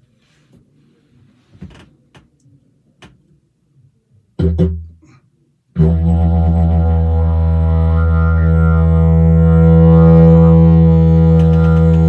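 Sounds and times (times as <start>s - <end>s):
didgeridoo drone blast: 5.8s - 12.0s.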